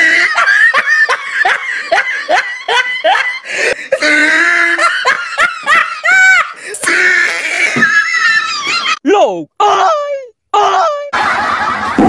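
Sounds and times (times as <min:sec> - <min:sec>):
person laughing: 0:00.0 - 0:09.0.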